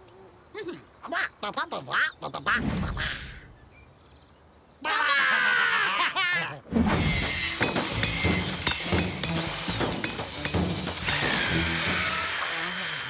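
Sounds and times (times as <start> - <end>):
clatter of bangs and breaking: 6.8 - 12.4.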